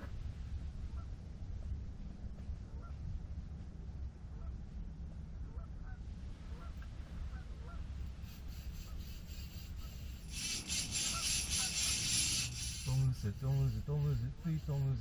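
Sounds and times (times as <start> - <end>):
fishing reel whirring: 7.9 - 15.0.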